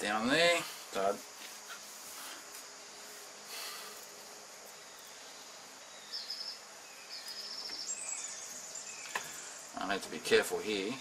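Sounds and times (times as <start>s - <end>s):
faint background hiss: 0.0s - 11.0s
insect chirping in rapid trills: 0.0s - 11.0s
soft rustle: 0.6s - 5.3s.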